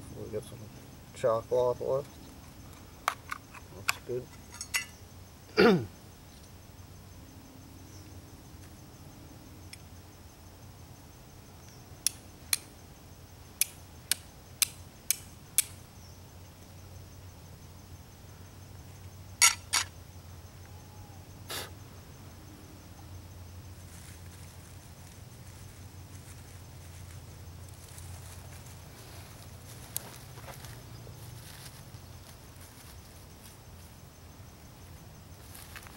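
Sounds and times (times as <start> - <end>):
flint and steel striking: 3.0 - 5.0, 19.4 - 19.9.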